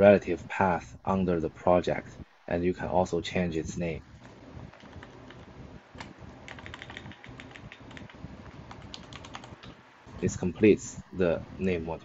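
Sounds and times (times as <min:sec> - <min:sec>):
computer keyboard typing: 0:04.7 - 0:09.8.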